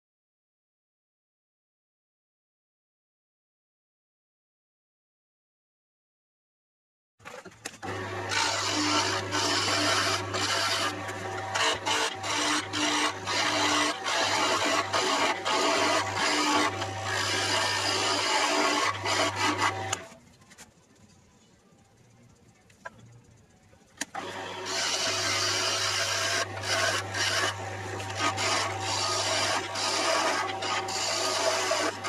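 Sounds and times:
lathe motor hum: 0:07.8 - 0:20.1, 0:24.2 - 0:32.0
chisel scraping wood on lathe: 0:07.8 - 0:20.2, 0:24.1 - 0:32.0.

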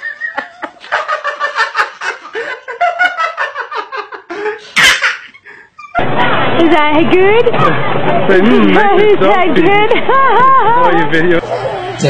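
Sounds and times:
man laughing: 0:00.0 - 0:06.0, 0:09.9 - 0:12.0
toddler laughing: 0:04.6 - 0:06.0.

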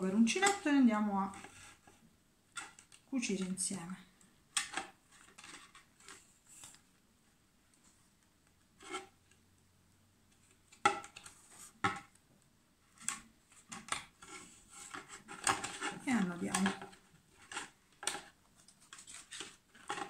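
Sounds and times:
plastic bottle clicks and scrapes: 0:12.9 - 0:20.0.

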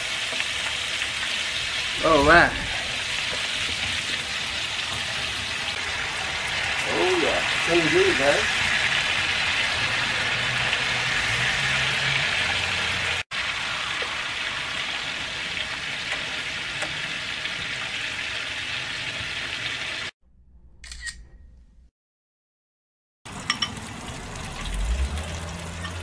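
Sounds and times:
fish sizzling in hot oil: 0:00.0 - 0:20.1.

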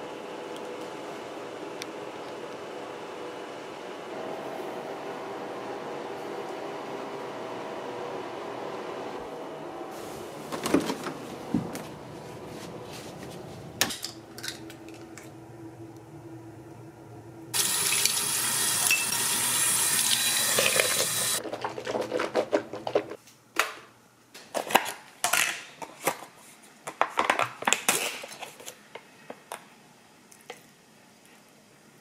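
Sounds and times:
low steady hum: 0:00.0 - 0:17.6.

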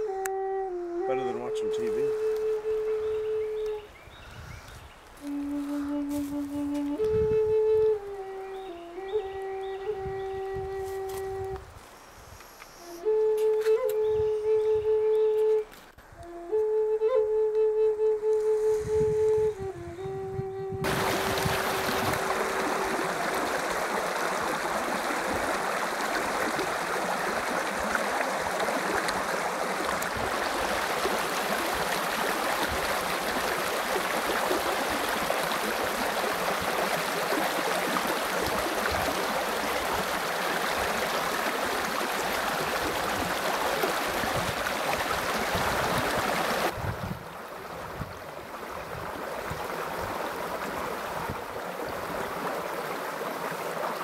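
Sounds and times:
creek water rushing over rocks: 0:20.8 - 0:54.0.

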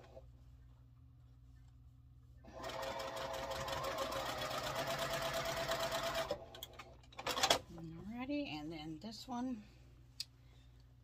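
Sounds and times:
electric sewing machine stitching: 0:02.5 - 0:07.6.

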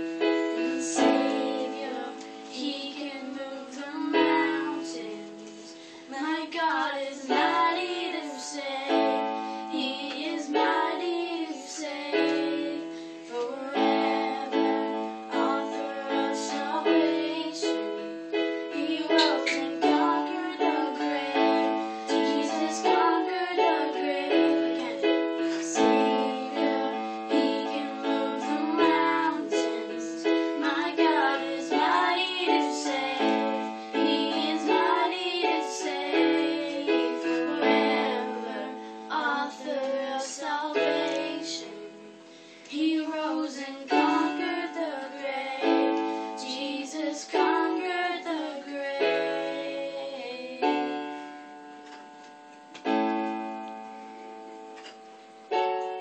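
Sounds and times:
electronic keyboard chords: 0:00.0 - 0:02.9, 0:07.3 - 0:42.3, 0:44.0 - 0:56.0
children singing: 0:00.0 - 0:51.1.

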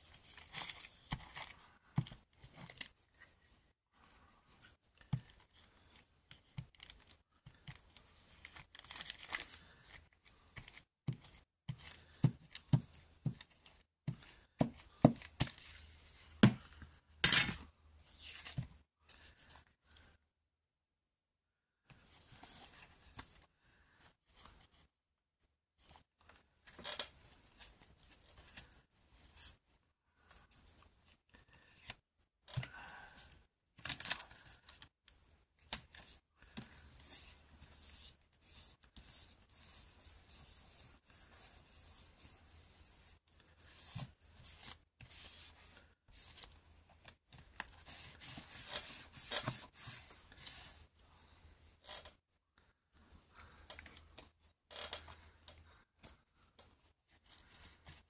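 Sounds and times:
paper crinkling and rustling: 0:00.0 - 0:03.3, 0:05.0 - 0:12.6.

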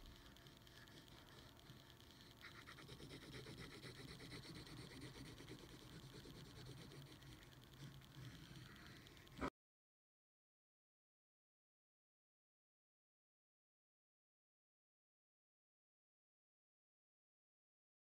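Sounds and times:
pencil scratching on paper: 0:00.0 - 0:09.5.

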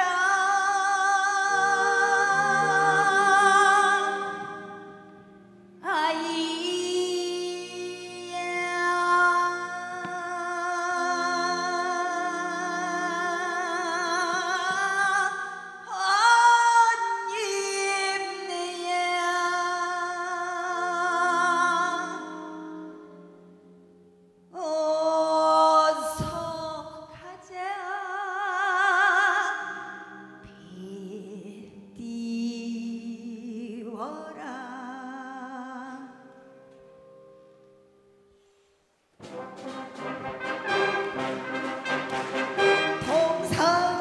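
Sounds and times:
woman singing folk song: 0:00.0 - 0:23.6, 0:24.5 - 0:37.5, 0:42.7 - 0:44.0
wind band chords: 0:01.5 - 0:04.8, 0:39.2 - 0:44.0.

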